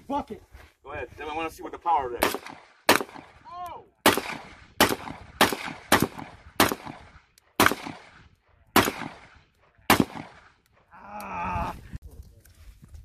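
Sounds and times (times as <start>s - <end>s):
gunshots with echo: 2.2s - 3.4s, 4.0s - 10.6s.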